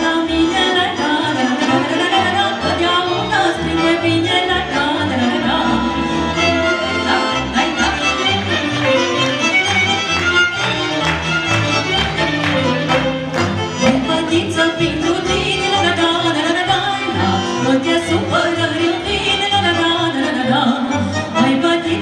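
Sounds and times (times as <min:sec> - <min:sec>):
woman singing folk song: 0:00.0 - 0:08.3, 0:13.8 - 0:22.0
accordion: 0:00.0 - 0:22.0
violins: 0:00.0 - 0:22.0.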